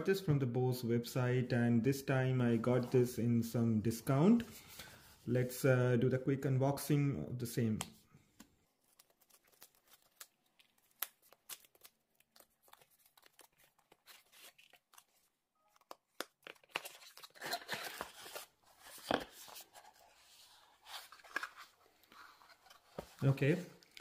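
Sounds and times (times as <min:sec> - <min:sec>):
paper and cardboard rustling: 0:08.8 - 0:15.3, 0:16.6 - 0:23.6.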